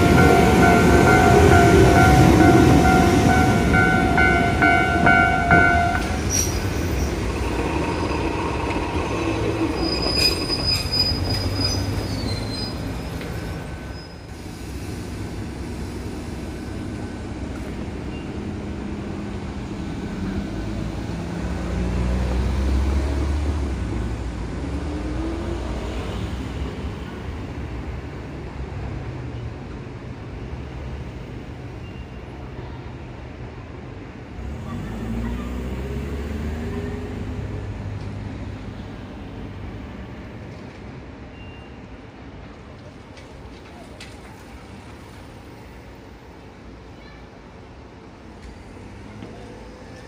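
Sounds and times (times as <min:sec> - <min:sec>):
rail clicks: 0:00.0 - 0:13.9, 0:42.3 - 0:45.3
high wheel squeal: 0:00.0 - 0:14.3
electric train running rumble: 0:00.0 - 0:28.8.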